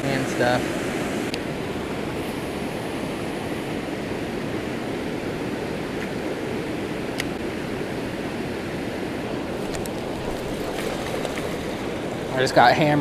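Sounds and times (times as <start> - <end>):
river water rushing through spillway: 8.9 - 13.0.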